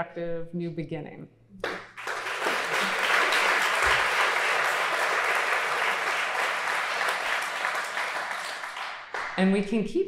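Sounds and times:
audience applauding: 0:01.6 - 0:09.4.

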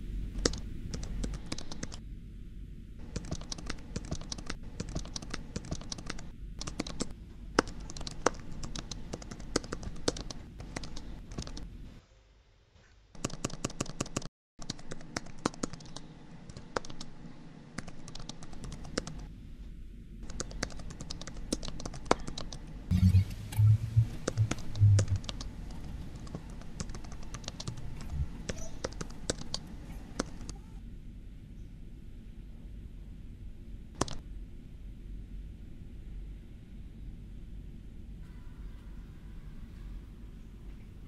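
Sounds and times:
laptop keyboard typing: 0:00.4 - 0:02.0, 0:03.0 - 0:11.7, 0:13.2 - 0:17.2, 0:17.8 - 0:19.3, 0:20.2 - 0:22.7, 0:24.2 - 0:30.6, 0:34.0 - 0:34.2.

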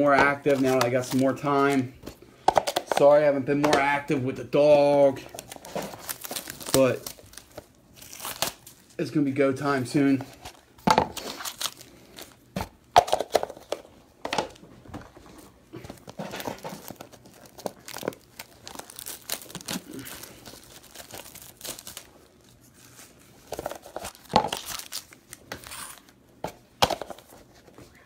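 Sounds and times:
plastic wrapping crinkling and tearing: 0:00.0 - 0:01.8, 0:05.2 - 0:09.0, 0:10.5 - 0:12.4, 0:15.8 - 0:26.2.

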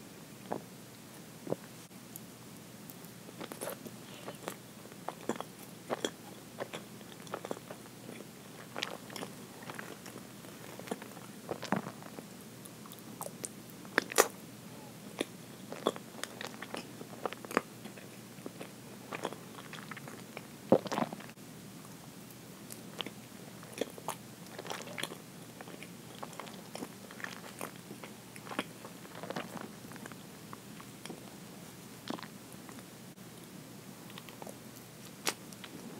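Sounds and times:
chewing with wet mouth smacks: 0:22.7 - 0:30.2.

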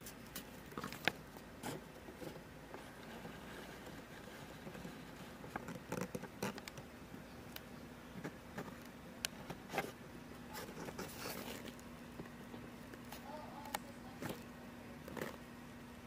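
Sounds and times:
low steady hum: 0:00.0 - 0:16.0
soft rustles: 0:09.6 - 0:11.9.

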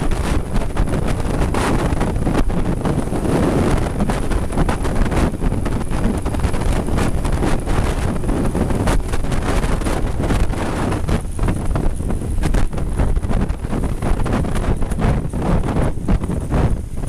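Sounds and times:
motorcycle engine running: 0:00.0 - 0:17.0
wind rushing over microphone: 0:00.0 - 0:17.0.

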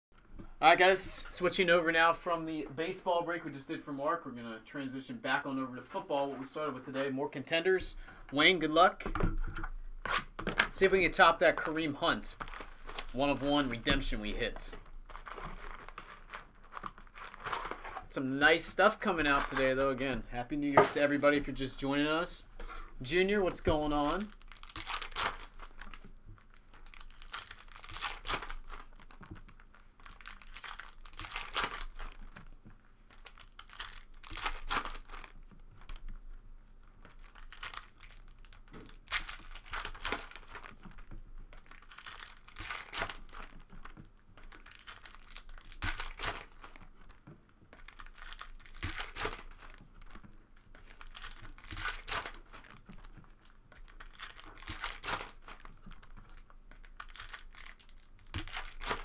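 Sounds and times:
foil wrappers tearing and crinkling: 0:11.5 - 0:13.8, 0:14.5 - 0:18.0, 0:23.4 - 0:32.5, 0:33.1 - 0:36.1, 0:37.0 - 0:47.1, 0:47.7 - 0:59.0.

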